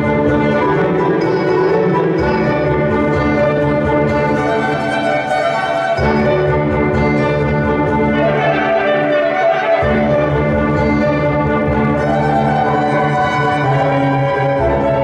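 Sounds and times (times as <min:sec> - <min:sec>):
clarinet: 0:00.0 - 0:15.0
keyboard: 0:00.0 - 0:15.0
violin: 0:00.0 - 0:15.0.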